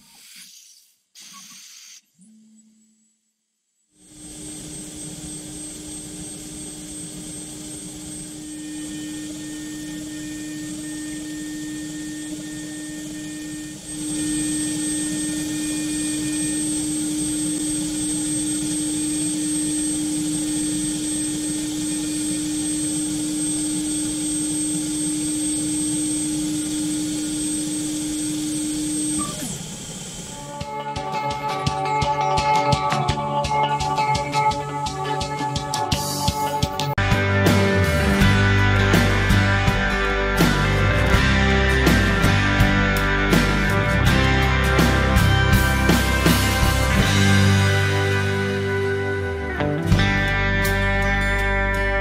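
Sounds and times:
milling machine spindle tone: 4.1s - 31.6s.

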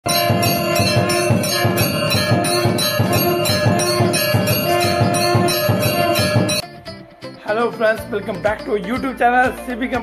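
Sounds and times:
steady drumbeat: 0.0s - 6.9s
temple bells ringing rapidly: 0.1s - 6.6s.

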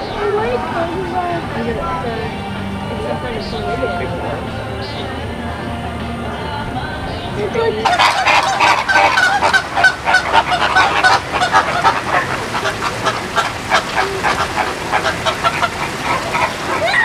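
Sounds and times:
flock of birds calling: 7.1s - 17.0s.

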